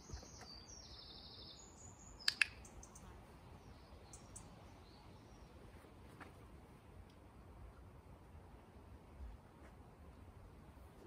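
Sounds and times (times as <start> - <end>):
songbird warbling: 0.0 - 3.1, 4.0 - 4.6
sharp double click: 2.2 - 2.8.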